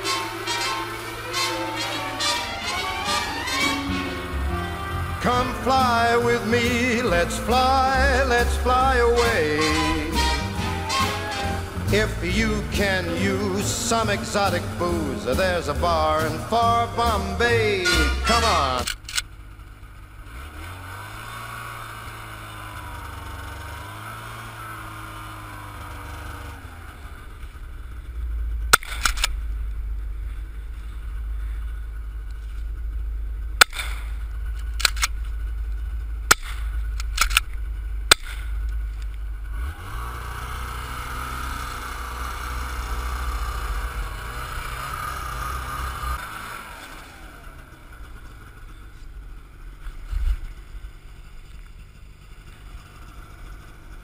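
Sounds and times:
snowmobile engine running: 0.0 - 54.0
rifle gunshots: 33.6 - 34.2.

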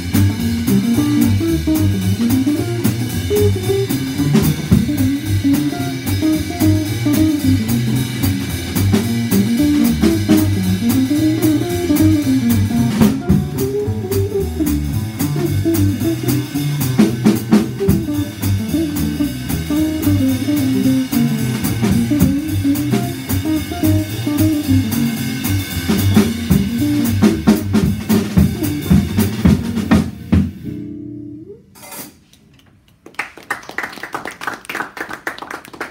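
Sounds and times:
electric guitar: 0.0 - 25.6
drum kit with cymbals: 0.0 - 31.0, 31.7 - 32.3
upright bass: 0.0 - 31.6
people clapping: 32.6 - 35.9.

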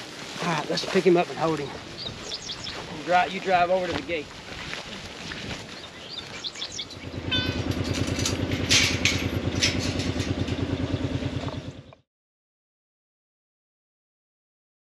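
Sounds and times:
engine idling: 6.0 - 12.0
short clatters: 6.3 - 11.8.

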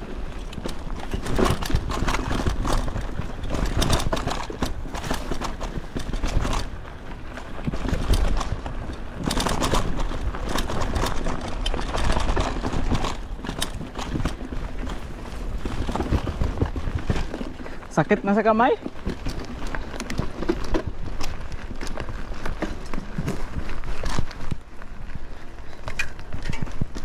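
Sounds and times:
mountain bike rattling: 0.0 - 27.0
wind buffeting microphone: 18.6 - 27.0.

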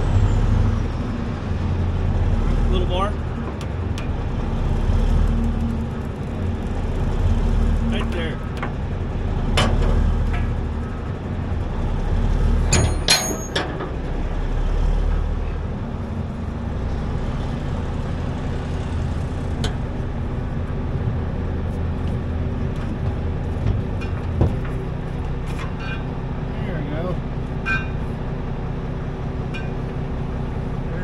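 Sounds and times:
truck engine idling: 0.0 - 31.0
winch gear squealing and clanking: 12.5 - 14.0, 23.8 - 28.2, 29.5 - 29.9.

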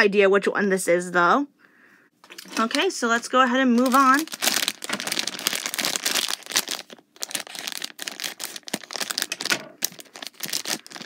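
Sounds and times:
plastic bag crinkling: 2.2 - 11.0.

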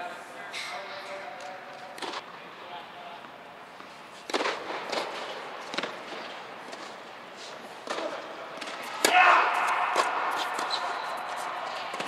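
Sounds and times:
tennis balls hit by rackets: 1.4 - 2.4, 3.2 - 12.0
tennis balls bouncing on hard court: 3.2 - 7.0.

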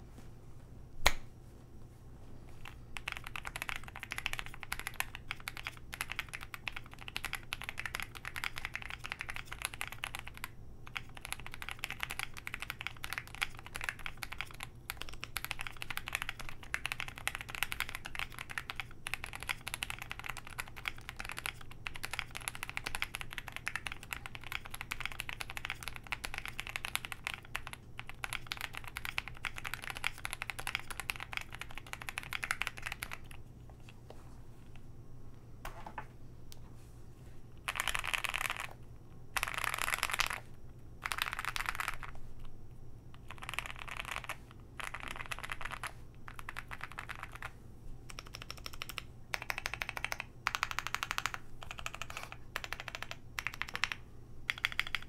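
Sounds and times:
fast typing on mechanical keyboard: 2.6 - 33.4, 37.6 - 40.4, 41.0 - 42.2, 43.2 - 55.0.

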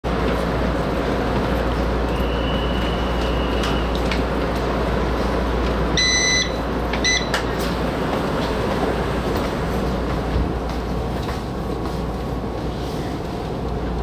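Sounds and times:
locomotive rumble and hum: 0.0 - 14.0
short high beeps: 6.0 - 7.3.

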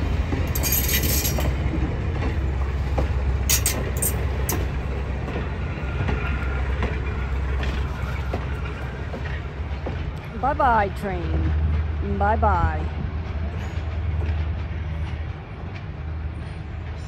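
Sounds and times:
train coaches rumbling past: 0.0 - 17.0
wheel squeaking on rail: 2.9 - 11.6.

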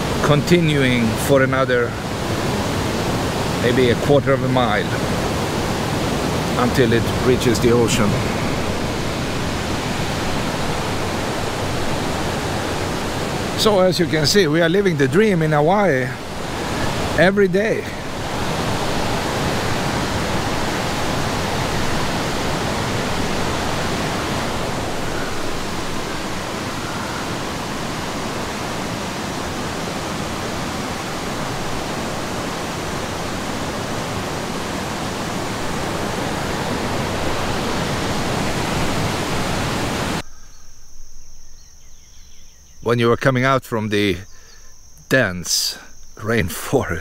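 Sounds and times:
stream water rushing: 0.0 - 40.2
faint insect chirping: 0.1 - 47.0.

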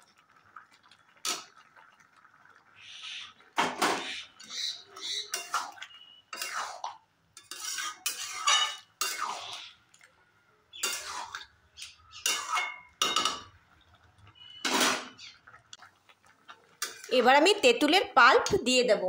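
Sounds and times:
metal spatula scraping pan: 5.0 - 9.6, 10.8 - 11.5.

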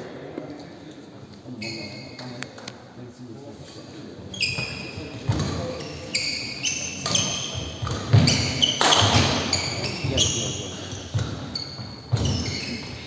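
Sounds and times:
shoes squeaking on court floor: 1.4 - 2.6, 4.2 - 13.0
racket hitting shuttlecock: 7.0 - 9.6.

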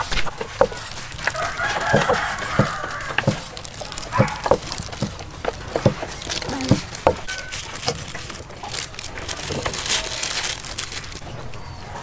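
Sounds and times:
cleavers chopping on wooden block: 0.0 - 8.8
rooster crowing: 1.2 - 4.6.

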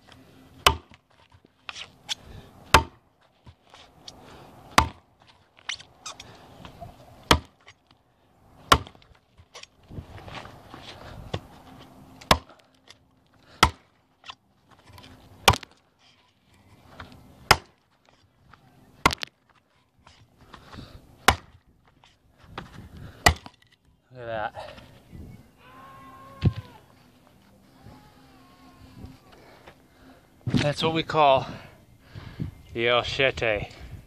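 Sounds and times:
chopper blade striking log: 0.6 - 1.0, 2.7 - 3.0, 4.8 - 5.0, 7.3 - 7.5, 8.7 - 9.0, 12.2 - 12.5, 13.6 - 13.9, 15.4 - 15.7, 17.5 - 17.8, 21.3 - 21.6, 23.2 - 23.6.

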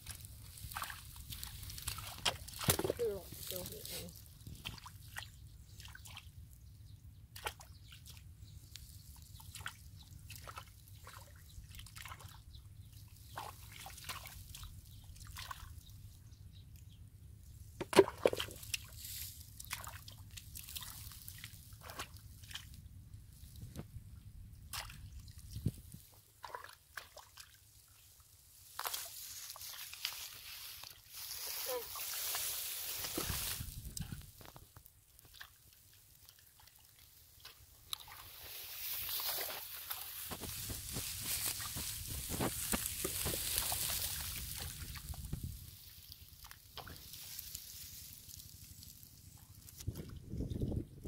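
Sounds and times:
hands squelching in wet mud: 0.0 - 6.2, 7.4 - 12.4, 13.2 - 15.8, 17.8 - 22.8, 24.7 - 50.1.

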